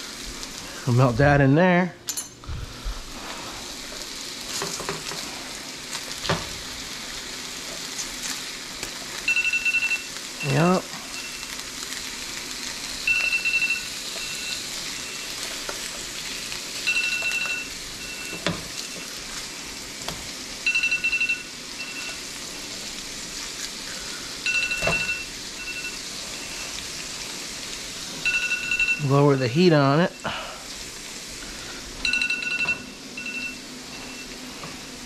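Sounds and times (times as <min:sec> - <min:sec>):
fish and butter sizzling: 0:00.0 - 0:01.1, 0:02.7 - 0:35.0
electronic high beeps: 0:13.0 - 0:15.4, 0:16.8 - 0:19.1, 0:20.6 - 0:22.2, 0:24.4 - 0:26.8, 0:28.2 - 0:29.2.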